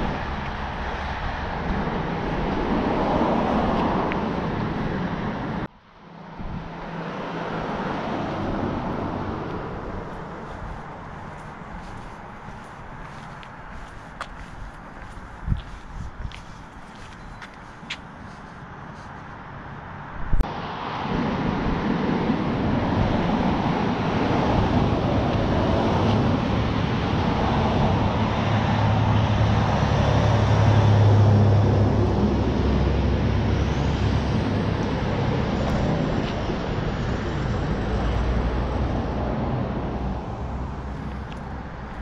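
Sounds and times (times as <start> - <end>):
road traffic noise: 0.0 - 42.0
vehicle low hum: 0.0 - 42.0.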